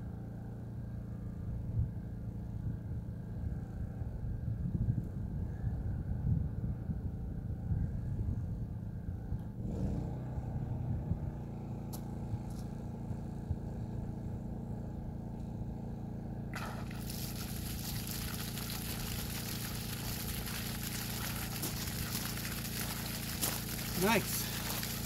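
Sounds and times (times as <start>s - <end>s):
low steady hum: 0.0s - 9.6s, 10.4s - 25.0s
water spraying from a hose: 16.5s - 25.0s.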